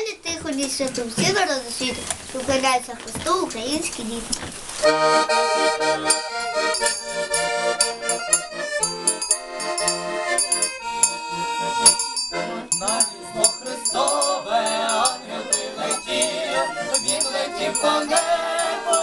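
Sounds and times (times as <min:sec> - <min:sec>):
button accordion playing chords: 0:04.8 - 0:19.0
group of voices singing: 0:12.7 - 0:19.0.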